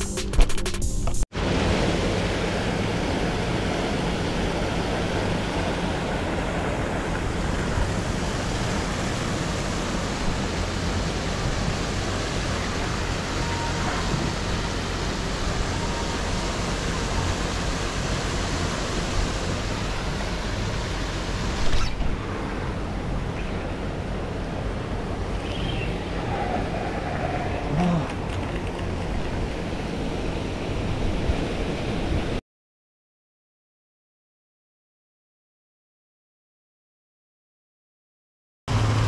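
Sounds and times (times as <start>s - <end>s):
pond aerator churning water: 1.4s - 32.0s, 38.7s - 39.0s.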